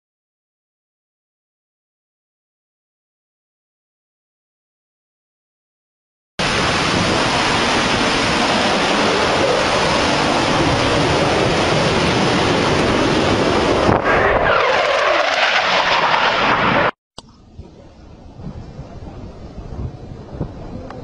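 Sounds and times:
fighter jet roar: 0:06.4 - 0:17.0
jet whine falling in pitch: 0:06.4 - 0:17.0.

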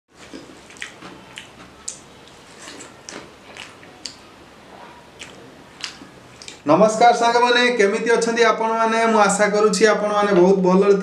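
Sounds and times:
fingers squishing rice and curry: 0:00.2 - 0:06.6.

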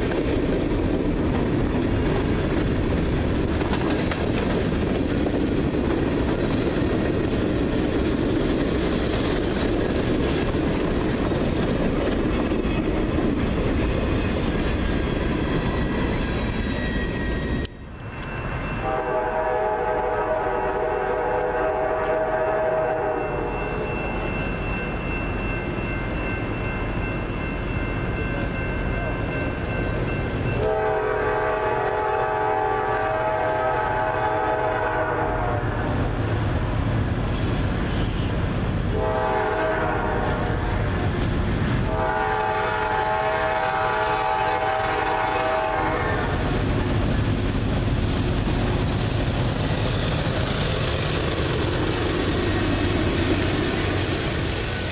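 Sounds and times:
train rumble: 0:00.0 - 0:54.9
locomotive air horn blasts: 0:18.8 - 0:23.5, 0:30.6 - 0:36.0, 0:38.9 - 0:40.6, 0:41.9 - 0:46.4.

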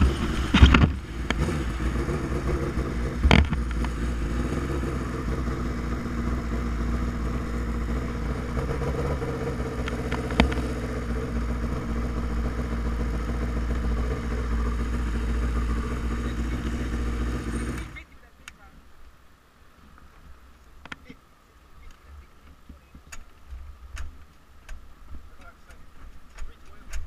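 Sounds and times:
motorcycle engine running: 0:00.0 - 0:18.1
sharp knocks: 0:03.2 - 0:03.9.

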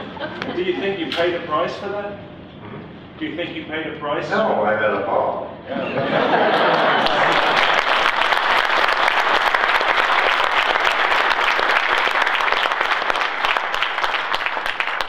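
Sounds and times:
audience applauding: 0:06.4 - 0:15.0.

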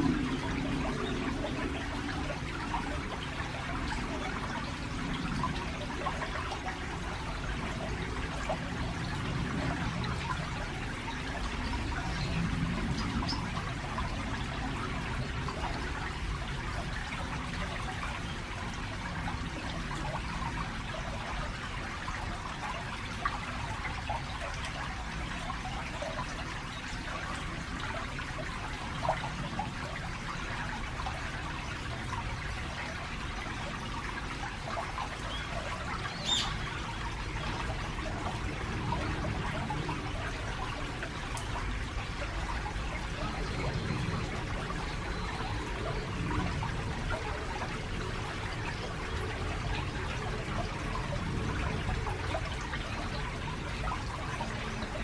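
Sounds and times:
stream babbling over stones: 0:00.0 - 0:55.0
traffic rumble: 0:27.0 - 0:55.0.

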